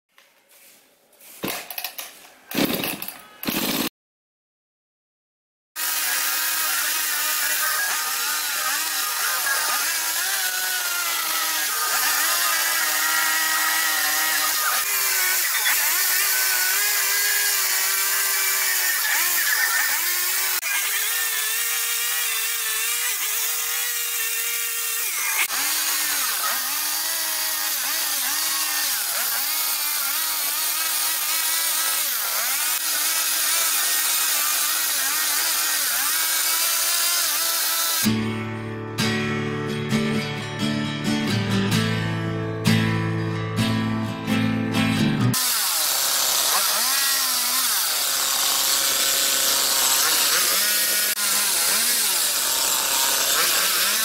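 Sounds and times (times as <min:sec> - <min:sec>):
chainsaw cutting wood: 0:01.4 - 0:03.9, 0:05.8 - 0:38.2, 0:45.3 - 0:54.0.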